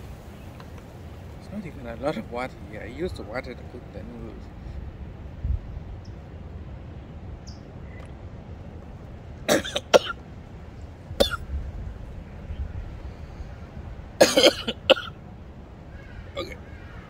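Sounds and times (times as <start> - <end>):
man coughing: 9.5 - 10.2, 11.2 - 11.4, 14.2 - 15.1.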